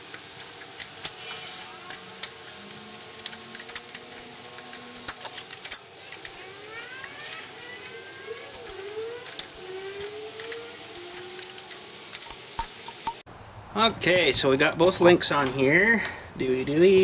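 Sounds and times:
wrench clinking on metal: 0:00.0 - 0:13.2.

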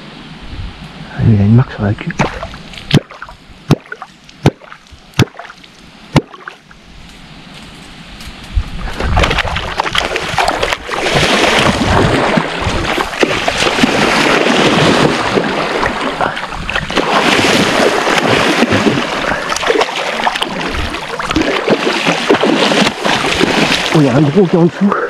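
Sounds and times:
fish splashing in water: 0:02.2 - 0:06.7, 0:08.9 - 0:24.3.

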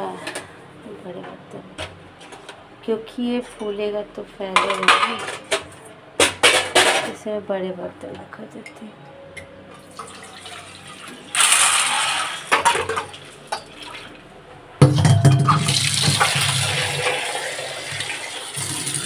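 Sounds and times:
water running into sink: 0:09.9 - 0:14.2, 0:15.3 - 0:19.0.

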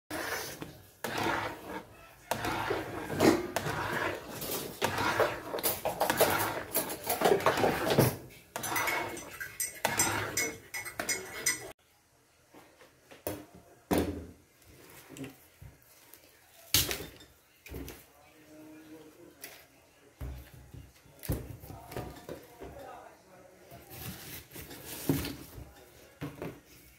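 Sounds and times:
metal spatula scraping a pan: 0:00.1 - 0:11.8.

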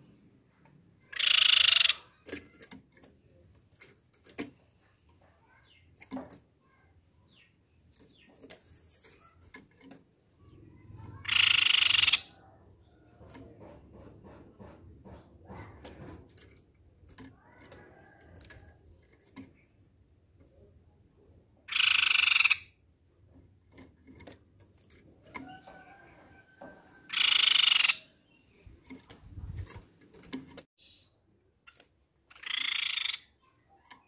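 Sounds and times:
bird giving harsh calls: 0:01.0 - 0:02.3, 0:11.0 - 0:12.4, 0:21.7 - 0:22.8, 0:27.1 - 0:28.1, 0:32.3 - 0:33.4.

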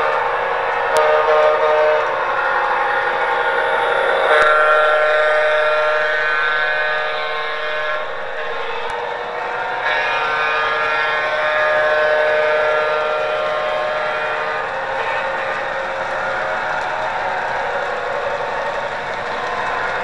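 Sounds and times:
model train whine and rolling: 0:00.0 - 0:20.0.

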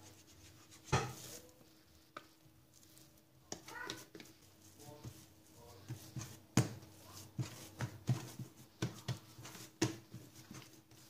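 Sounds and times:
dough thumping on countertop: 0:00.8 - 0:01.3, 0:05.8 - 0:11.0.

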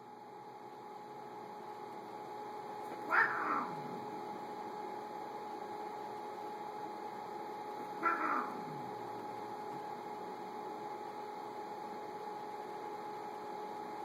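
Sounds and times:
steady low hum: 0:00.0 - 0:14.0
cat crying: 0:02.9 - 0:04.3, 0:07.8 - 0:09.0.

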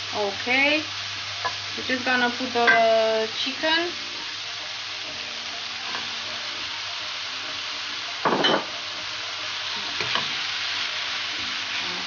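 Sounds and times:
chicken sizzling in frying pan: 0:00.0 - 0:12.0.

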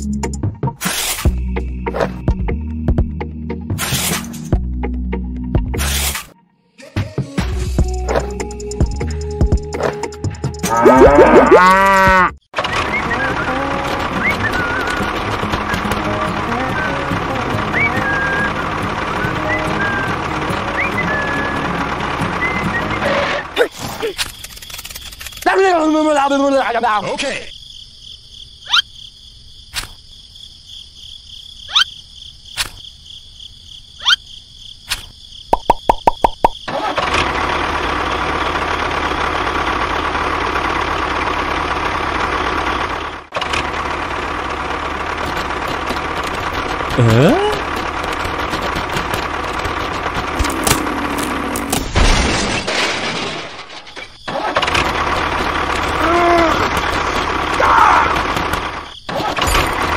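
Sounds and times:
cartoon rising bloops: 0:10.7 - 0:12.3
engine running steadily: 0:12.6 - 0:23.6, 0:36.7 - 0:52.0, 0:54.3 - 0:59.9
high-pitched insects chirping: 0:23.9 - 0:36.7
short cartoon pops: 0:34.9 - 0:36.7.

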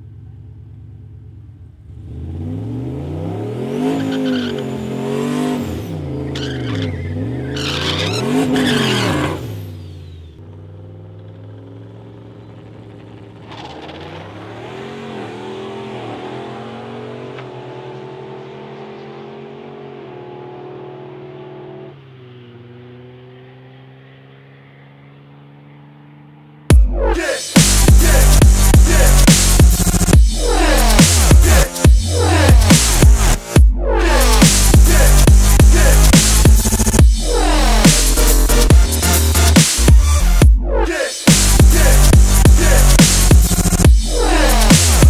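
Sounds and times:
car engine revving: 0:01.8 - 0:45.0
tire squeal: 0:03.6 - 0:11.5, 0:12.3 - 0:17.7.

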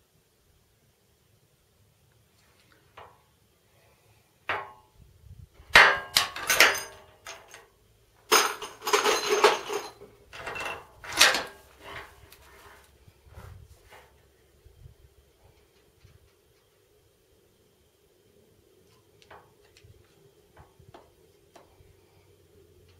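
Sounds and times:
rifle clanking and rattling: 0:05.7 - 0:07.7, 0:08.3 - 0:12.2.

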